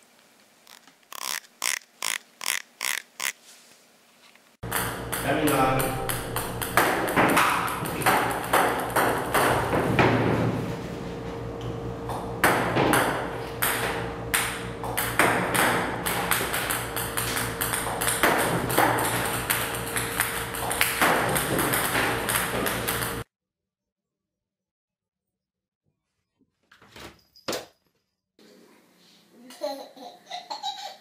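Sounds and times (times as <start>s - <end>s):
ping-pong balls clicking: 4.6s - 9.8s, 13.6s - 23.2s
steady hum: 4.6s - 23.3s.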